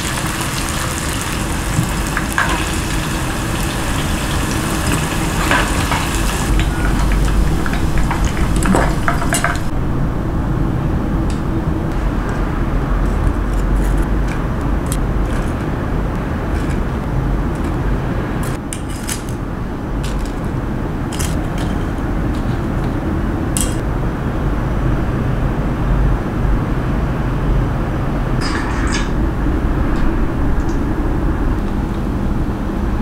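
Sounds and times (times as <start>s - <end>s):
low background rumble: 0.0s - 18.6s, 19.4s - 33.0s
metal tongs clicking: 21.1s - 22.6s, 23.6s - 23.8s.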